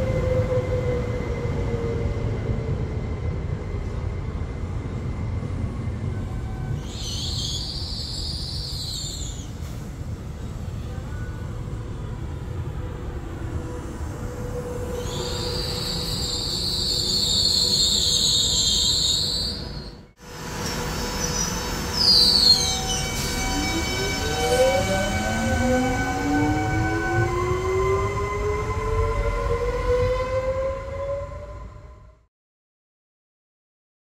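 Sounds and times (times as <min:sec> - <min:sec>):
train rumbling: 0:00.0 - 0:32.2
metallic wheel squeal: 0:14.7 - 0:20.0, 0:21.0 - 0:27.2.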